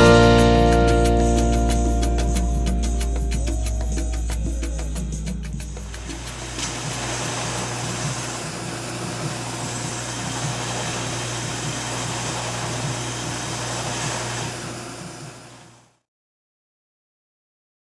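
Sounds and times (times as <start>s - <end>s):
shop machine whirring: 6.0s - 16.0s.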